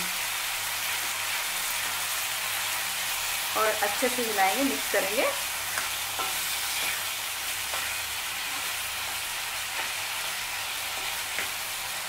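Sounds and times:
tomatoes sizzling in a pan: 0.0s - 12.0s
spatula scraping and tapping pan: 5.7s - 8.7s.

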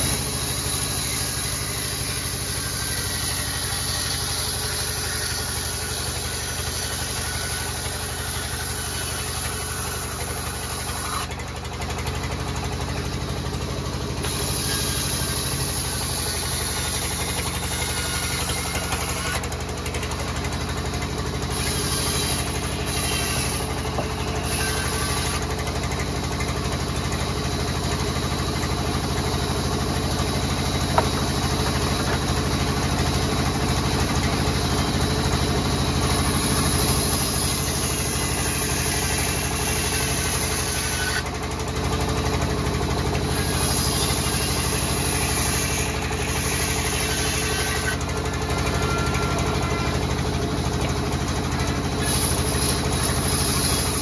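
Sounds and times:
saw blade hissing through wood: 0.0s - 11.4s, 14.2s - 19.5s, 20.9s - 25.7s, 35.7s - 41.3s, 43.2s - 50.0s, 51.6s - 54.0s
band saw humming: 0.0s - 54.0s.

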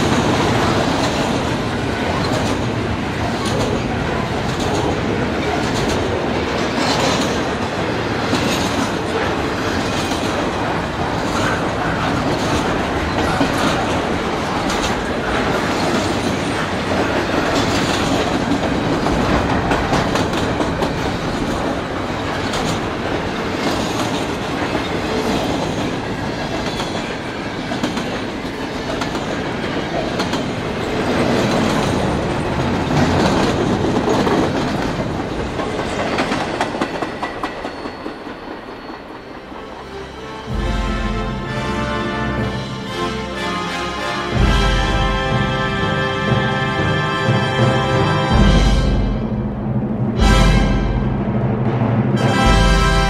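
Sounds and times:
clickety-clack over rail joints: 0.0s - 39.8s
train wheels rumbling on rail: 0.0s - 53.0s.

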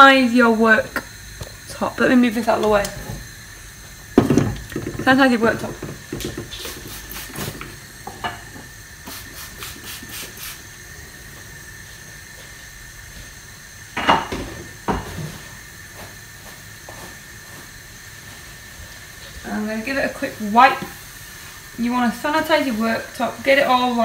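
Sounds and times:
kitchen items knocking and clattering: 4.1s - 8.6s.

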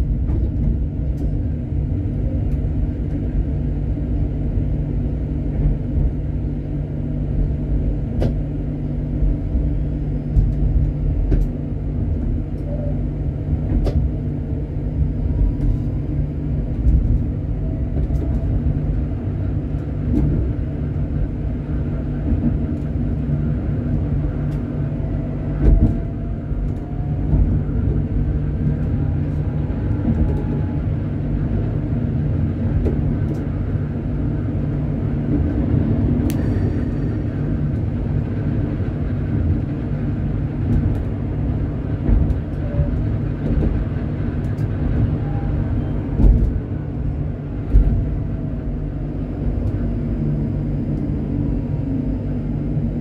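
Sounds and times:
tram motor whine: 0.0s - 53.0s
tram wheels rumbling: 0.0s - 53.0s.

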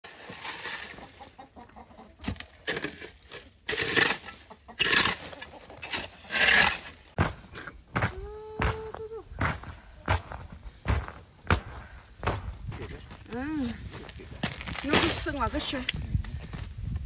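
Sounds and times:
rubber boots crunching through snow: 7.2s - 17.0s.

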